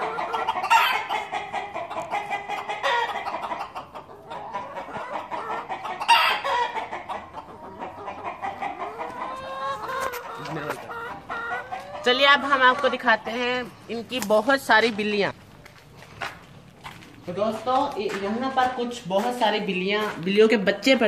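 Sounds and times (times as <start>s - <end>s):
loud chicken call: 0.0s - 12.1s
chickens clucking: 0.0s - 21.0s.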